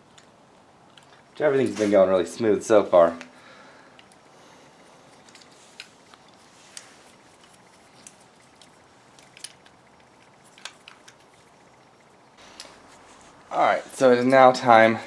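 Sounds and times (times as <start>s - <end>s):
low steady hiss: 0.0s - 15.0s
metal parts clicking in hands: 5.1s - 12.8s.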